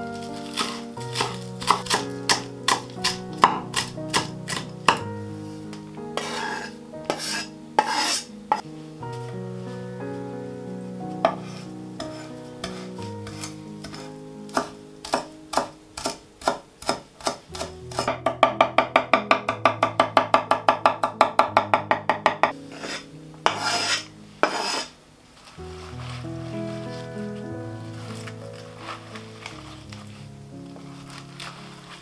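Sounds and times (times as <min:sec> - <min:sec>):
knife chopping on wooden board: 0:00.6 - 0:05.1, 0:12.1 - 0:22.4.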